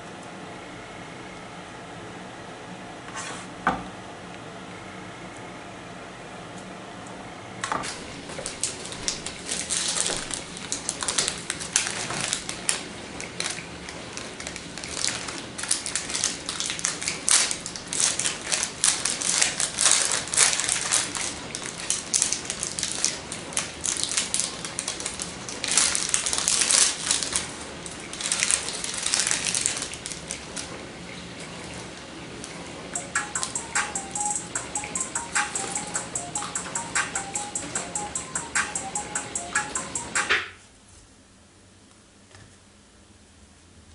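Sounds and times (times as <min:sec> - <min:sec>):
foil wrapper crinkling: 0:07.9 - 0:30.7.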